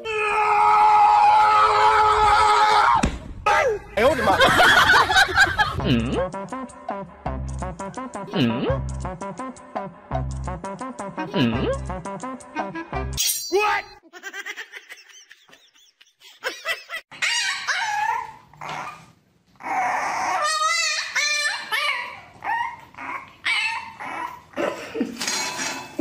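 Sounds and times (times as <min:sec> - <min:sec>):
puppy barking and whining: 0:17.1 - 0:24.6.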